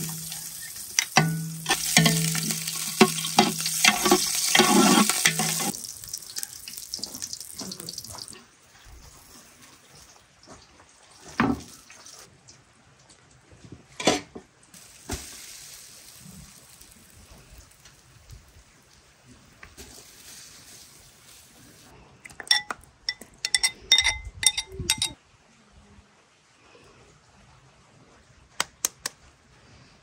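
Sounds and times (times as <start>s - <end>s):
pot and utensils knocking: 1.0s - 5.7s, 22.4s - 25.2s
soft hiss: 14.8s - 22.0s
metal spoon clinking on bowl: 22.4s - 25.2s.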